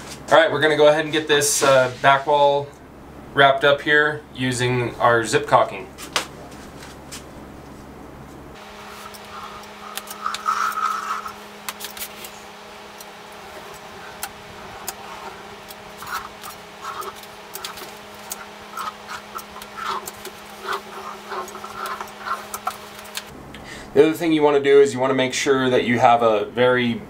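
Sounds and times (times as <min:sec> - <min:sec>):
steady low hum: 0:00.0 - 0:27.0
caulk nozzle rubbing and squeezing: 0:08.6 - 0:23.3.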